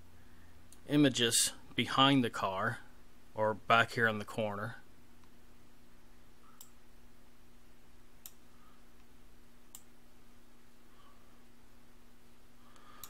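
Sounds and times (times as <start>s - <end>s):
low steady hum: 0.0s - 13.0s
faint computer mouse clicks: 6.5s - 6.8s.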